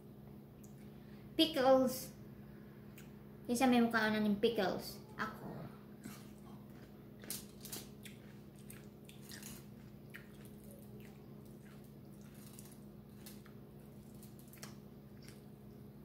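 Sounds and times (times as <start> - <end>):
person chewing and smacking: 6.0 - 15.8.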